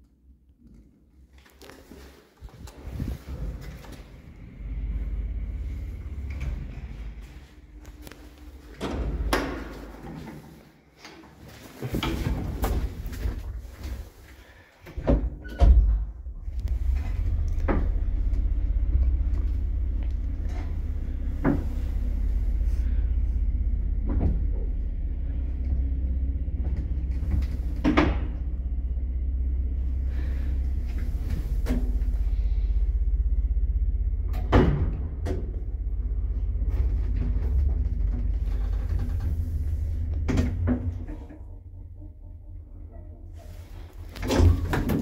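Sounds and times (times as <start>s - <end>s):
lift car rumbling: 1.9s - 45.0s.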